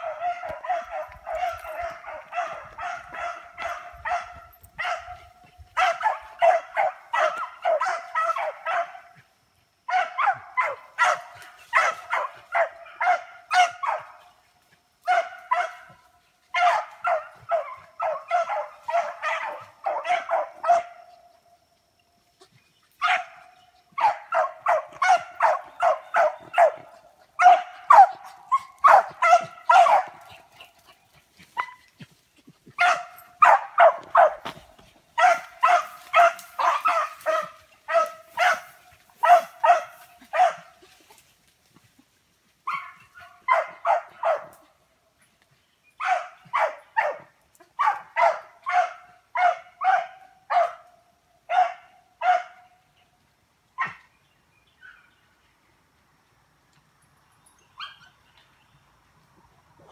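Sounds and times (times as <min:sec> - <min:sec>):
beagle barking: 0:00.0 - 0:09.2, 0:09.9 - 0:14.2, 0:15.0 - 0:21.2, 0:23.0 - 0:30.8, 0:32.8 - 0:34.6, 0:35.2 - 0:40.9, 0:42.6 - 0:44.6, 0:46.0 - 0:50.9, 0:51.5 - 0:52.8.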